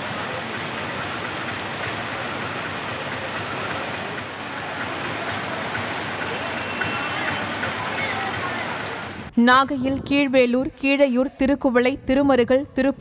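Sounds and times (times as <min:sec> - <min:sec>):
heavy rain pouring: 0:00.0 - 0:09.3.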